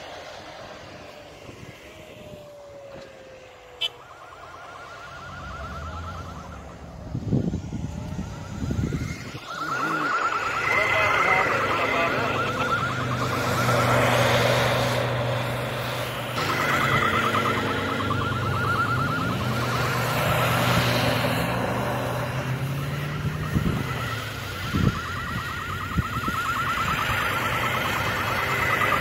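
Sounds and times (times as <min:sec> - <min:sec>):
engine running under load: 0:00.0 - 0:29.0
fast warbling high tone: 0:03.8 - 0:15.0, 0:16.4 - 0:21.6, 0:23.0 - 0:29.0
tyres spinning in snow: 0:07.6 - 0:29.0.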